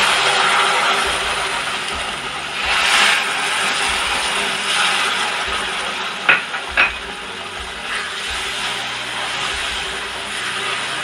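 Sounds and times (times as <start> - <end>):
milk sizzling in a hot pan: 0.0 - 11.0.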